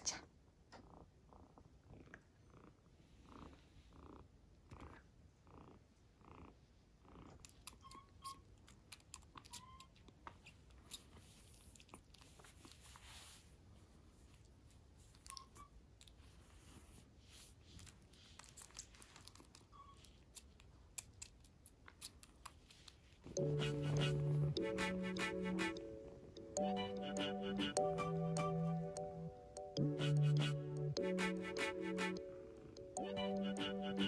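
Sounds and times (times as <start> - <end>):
kitten sucking milk: 7.2 - 13.0, 17.7 - 23.4
kitten squeaks: 7.5 - 11.4, 15.1 - 15.9, 18.4 - 22.6
soft evenly spaced pulses: 22.7 - 34.0.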